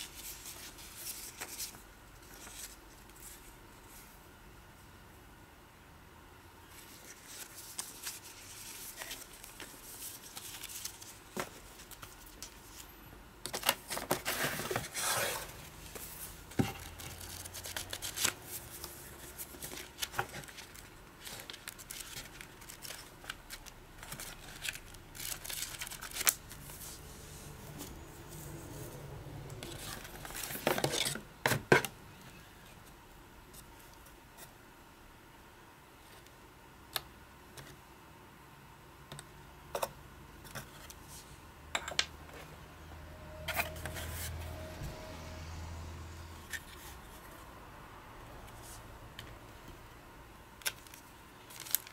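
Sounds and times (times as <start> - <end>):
paper rustling and crinkling: 0.0 - 4.1, 6.7 - 28.6, 29.6 - 31.7, 50.6 - 51.9.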